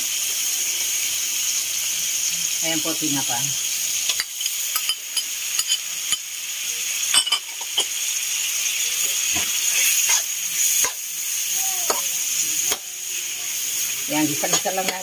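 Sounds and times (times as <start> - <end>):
food sizzling in hot oil: 0.0 - 15.0
metal ladle scraping a wok: 9.6 - 11.0.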